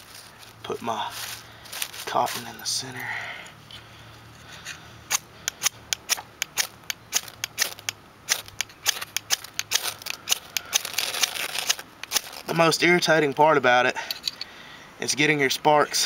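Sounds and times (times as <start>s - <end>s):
fire starter rod scraping: 3.7s - 12.7s.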